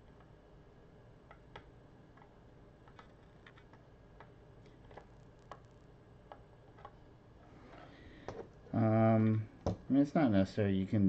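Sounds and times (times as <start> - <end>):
small clicks of wires and circuit board: 1.2 - 7.0.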